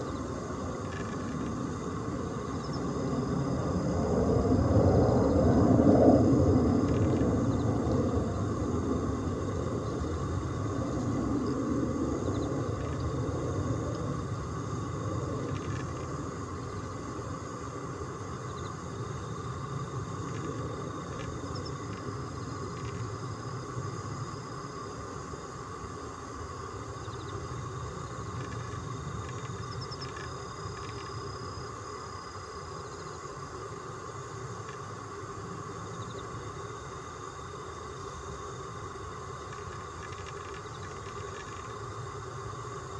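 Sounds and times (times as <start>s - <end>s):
faint steady hum: 0.0s - 42.9s
low background rumble: 0.0s - 42.9s.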